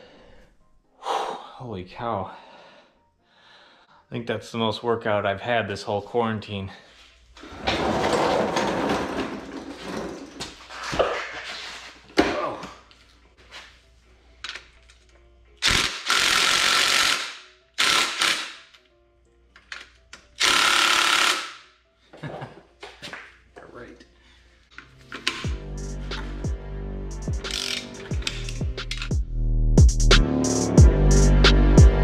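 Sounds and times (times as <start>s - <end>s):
tools clattering and knocking: 7.5s - 11.5s.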